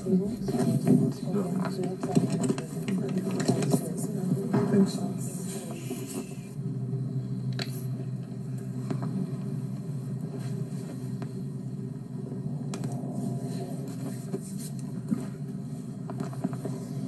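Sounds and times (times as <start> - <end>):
steady low hum: 0.0 - 17.0
faint clicks and taps: 0.4 - 4.9, 16.0 - 16.9.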